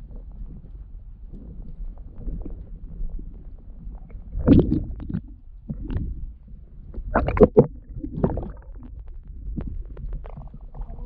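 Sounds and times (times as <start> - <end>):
low rumble: 0.0 - 11.0
water sloshing and splashing: 4.2 - 6.2, 6.9 - 11.0.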